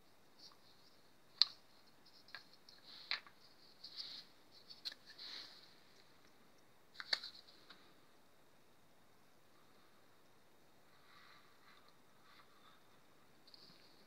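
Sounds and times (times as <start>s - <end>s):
light clicks and scraping: 0.4s - 7.9s, 13.4s - 14.0s.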